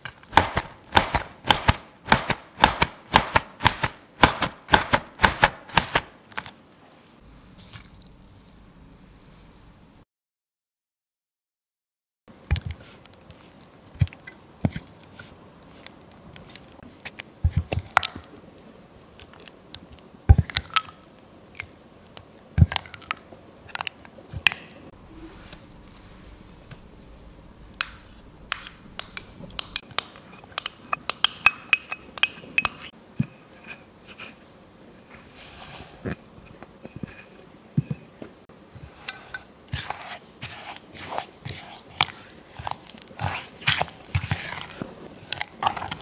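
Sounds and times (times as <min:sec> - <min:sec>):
spatula clinking against glass: 0:30.6 - 0:32.9
spatula squelching cream cheese: 0:38.8 - 0:46.0.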